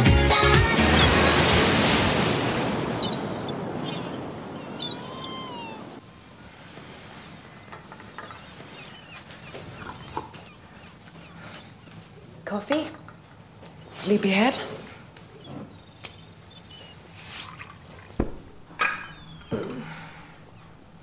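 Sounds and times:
sea surf rushing: 0.0s - 7.6s
seagull cries: 3.0s - 6.0s.

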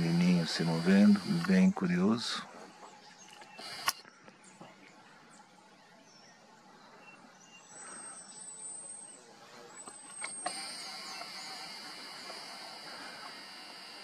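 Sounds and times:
steady high hiss: 0.0s - 2.5s, 7.9s - 14.0s
forest ambience: 0.0s - 14.0s.

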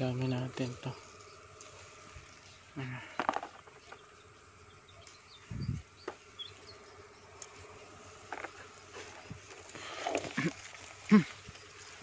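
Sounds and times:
flying insect buzzing: 0.0s - 12.0s
small clicks from plants: 1.6s - 1.8s, 7.4s - 7.6s.

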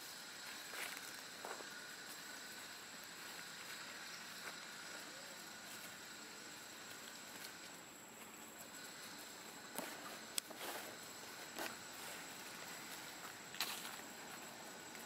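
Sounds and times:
faint outdoor hiss: 0.0s - 15.0s
faint ticks: 6.8s - 10.6s.

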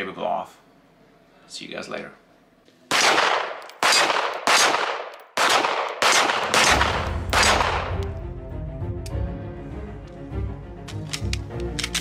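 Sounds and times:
pistol shots with echo: 2.9s - 8.0s
background music: 6.6s - 12.0s.

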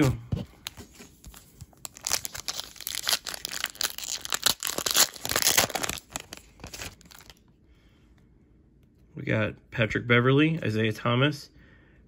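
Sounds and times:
cellophane wrapper crackling: 0.7s - 7.4s.

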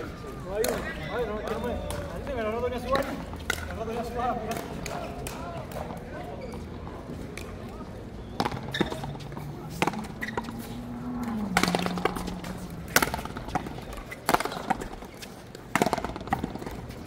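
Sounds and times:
ball knocking off paddles and wall: 8.4s - 15.1s, 15.7s - 16.9s.

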